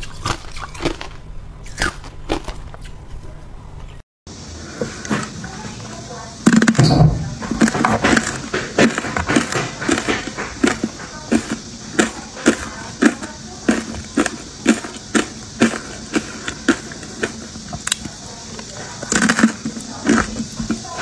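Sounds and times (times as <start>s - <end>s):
ice being bitten and chewed: 0.0s - 3.0s, 7.5s - 21.0s.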